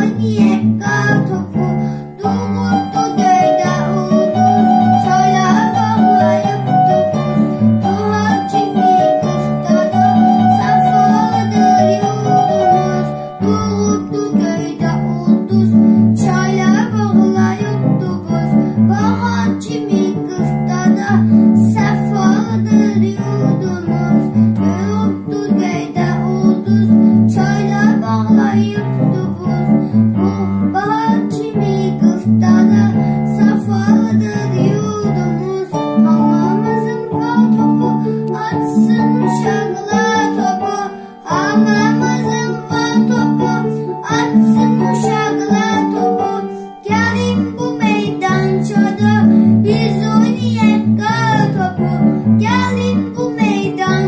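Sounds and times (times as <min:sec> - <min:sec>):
boy singing: 0:00.0 - 0:54.0
karaoke backing track: 0:30.3 - 0:54.0.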